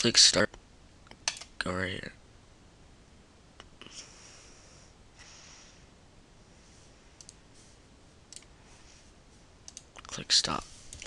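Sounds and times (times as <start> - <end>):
room hiss: 0.0 - 11.0
computer clicks: 1.1 - 1.5, 7.2 - 7.4, 8.3 - 8.5, 9.6 - 10.1.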